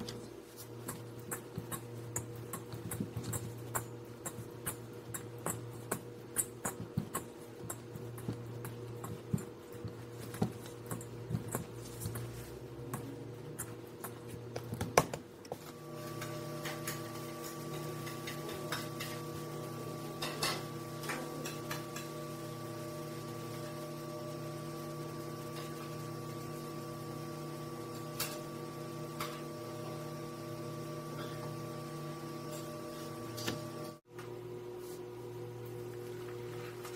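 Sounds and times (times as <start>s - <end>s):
hands kneading dough: 0.0s - 15.8s
steady hum: 0.0s - 36.9s.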